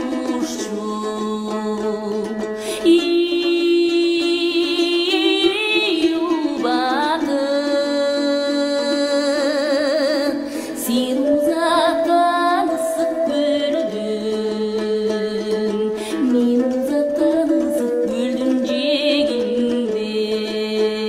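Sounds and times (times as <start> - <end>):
woman singing with vibrato: 0.0 - 21.0
sustained instrumental accompaniment: 10.2 - 20.5.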